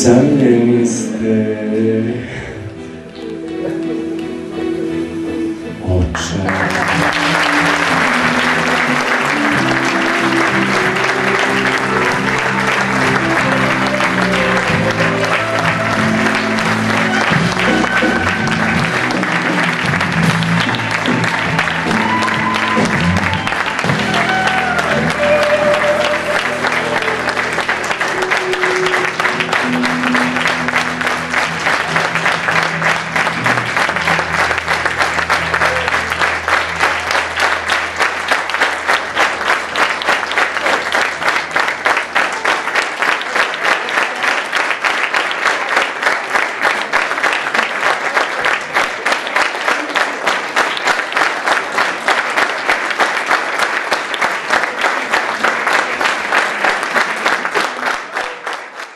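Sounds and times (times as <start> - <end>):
band playing closing music: 0.0 - 42.8
audience applauding: 2.7 - 4.8, 5.8 - 58.9.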